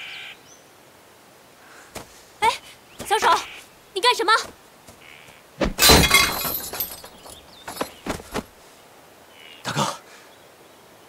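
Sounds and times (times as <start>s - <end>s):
brittle object shattering: 5.8s - 8.0s
small clinks: 5.8s - 8.1s.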